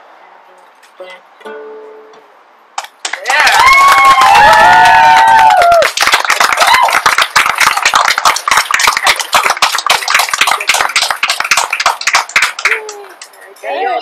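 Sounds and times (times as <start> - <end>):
hand clapping: 2.8 - 4.6, 5.4 - 13.4.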